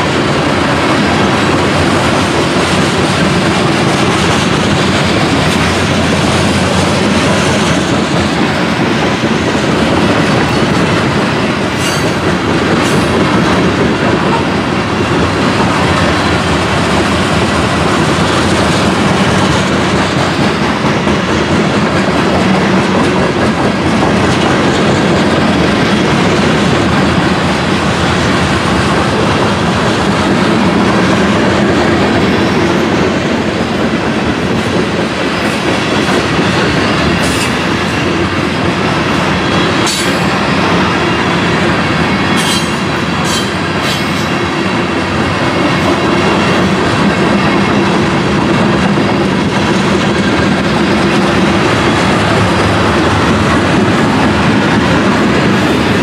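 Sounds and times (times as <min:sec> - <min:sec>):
freight train wheels clattering: 0:00.0 - 0:56.0.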